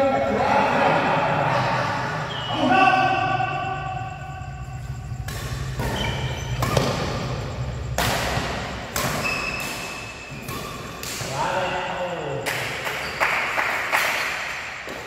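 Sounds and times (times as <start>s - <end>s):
badminton racket hitting shuttlecock: 5.3s - 11.3s
shoe squeaks on court floor: 5.6s - 7.2s, 9.2s - 11.0s, 13.0s - 13.2s.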